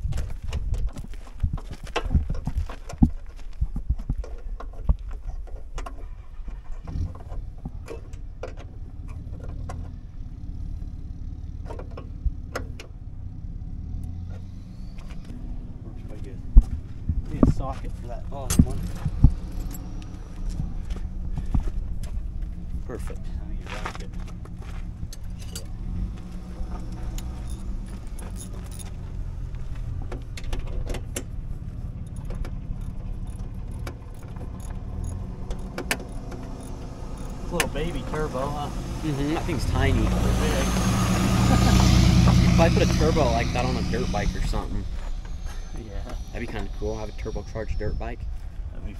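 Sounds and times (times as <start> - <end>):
engine idling: 0.0 - 48.9
light metallic clinks and clicks: 18.4 - 21.0, 26.7 - 29.1, 31.8 - 38.0.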